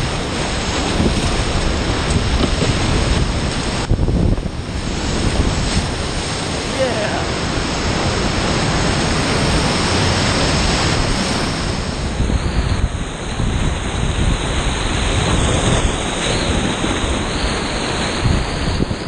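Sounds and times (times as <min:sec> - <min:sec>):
water splashing against boat: 0:00.0 - 0:19.0
whitewater rapids rushing: 0:04.8 - 0:12.0.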